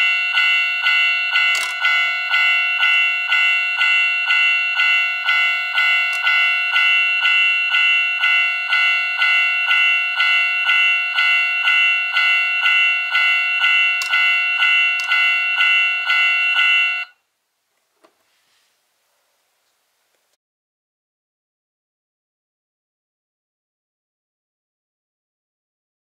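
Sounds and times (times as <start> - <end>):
level crossing warning bell: 0.0 - 17.2.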